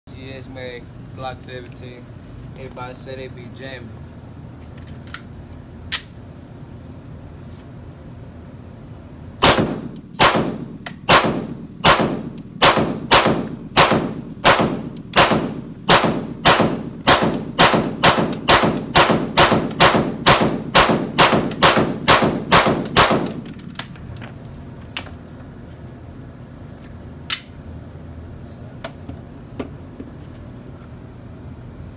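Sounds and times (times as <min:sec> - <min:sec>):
pistol shots echoing indoors: 0:09.4 - 0:23.4.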